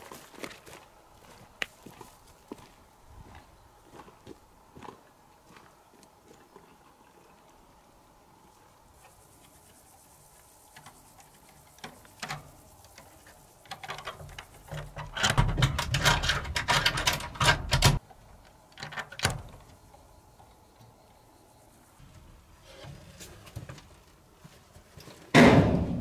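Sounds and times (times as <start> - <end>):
wire fastening clicking and scraping: 10.8 - 18.0
door rattling in its frame: 13.9 - 18.0.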